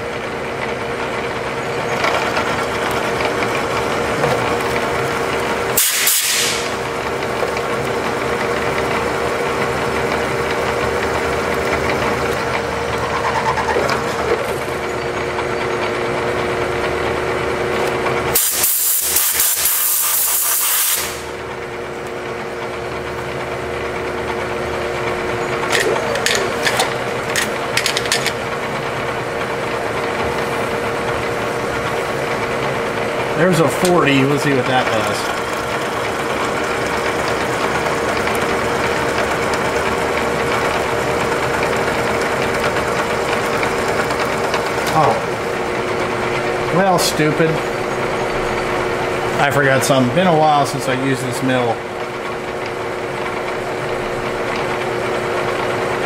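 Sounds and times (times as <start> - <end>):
milling machine humming: 0.0 - 56.0
compressed air blow gun hissing: 5.8 - 6.7, 18.4 - 21.3.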